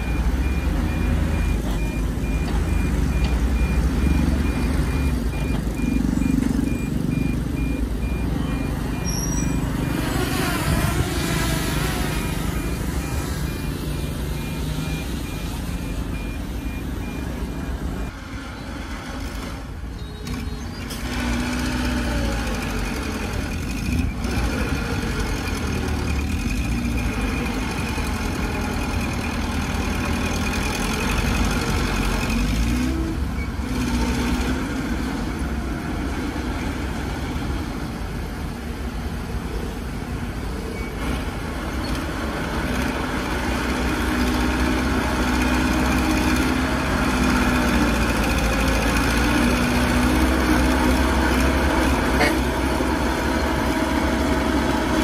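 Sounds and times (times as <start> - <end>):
reversing alarm beeping: 0.0 - 18.2
heavy diesel engines working: 0.0 - 55.0.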